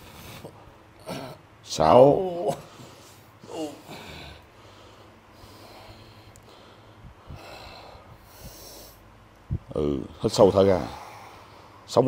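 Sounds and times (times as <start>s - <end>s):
man breathing heavily: 0.0s - 1.5s, 2.6s - 9.2s, 10.0s - 11.9s
man grunting: 1.0s - 2.7s, 3.4s - 4.4s.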